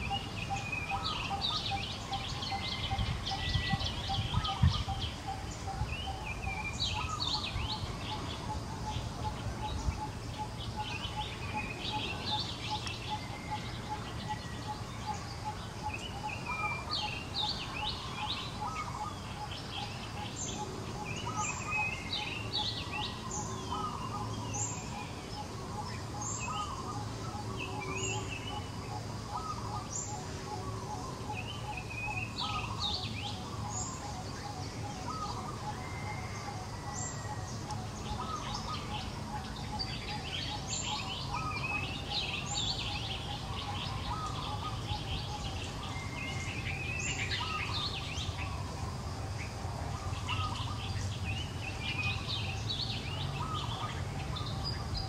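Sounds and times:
wild birds chirping: 0:00.0 - 0:55.0.

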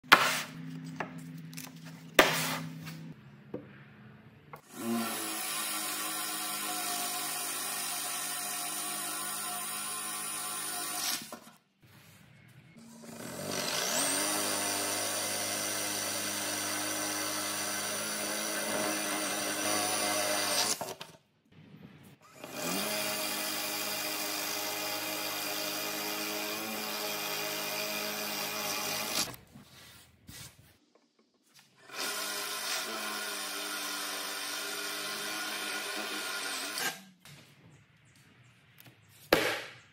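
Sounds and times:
cordless drill boring into wood: 0:04.6 - 0:11.4, 0:13.0 - 0:20.9, 0:22.3 - 0:29.4, 0:31.8 - 0:37.0.

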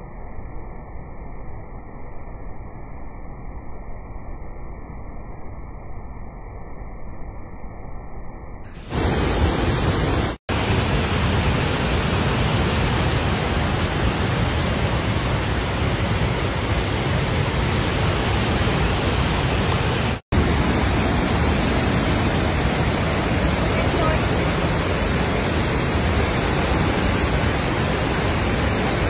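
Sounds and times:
waterfall rushing: 0:08.8 - 0:29.0.

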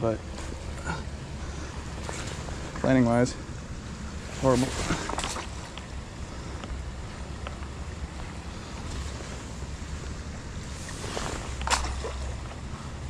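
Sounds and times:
creek water rushing: 0:00.2 - 0:13.0.

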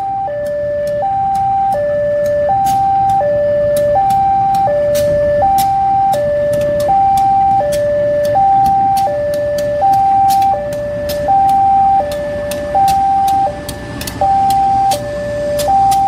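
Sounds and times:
diesel locomotive engine running: 0:00.0 - 0:16.0
sharp clicks: 0:00.0 - 0:16.0
two-tone level crossing alarm: 0:00.0 - 0:16.0.

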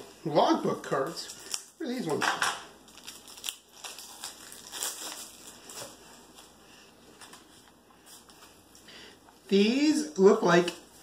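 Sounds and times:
shrink wrap crinkling and tearing: 0:00.8 - 0:02.2, 0:02.8 - 0:06.6.

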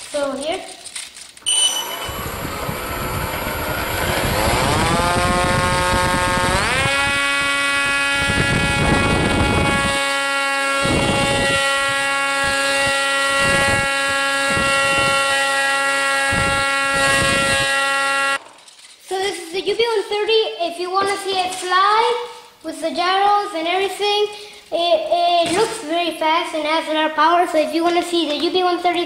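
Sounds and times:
model plane motor whining: 0:01.6 - 0:18.4.

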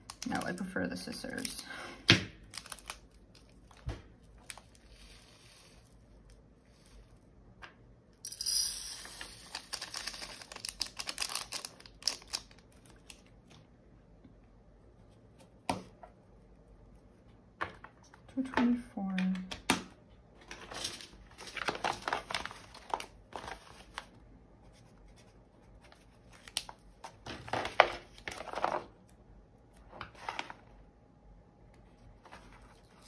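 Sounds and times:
plastic bag crinkling: 0:02.4 - 0:05.9, 0:09.5 - 0:13.3, 0:20.5 - 0:24.0.

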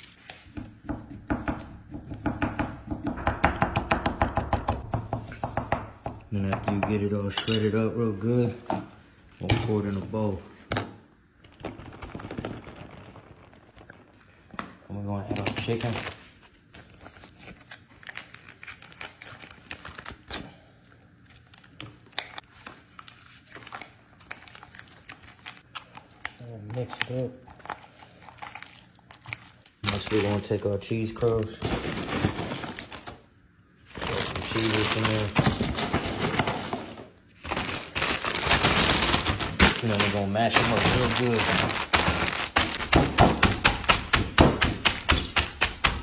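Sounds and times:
foil pouch crinkling: 0:15.4 - 0:20.3, 0:22.4 - 0:33.2, 0:33.8 - 0:43.9.

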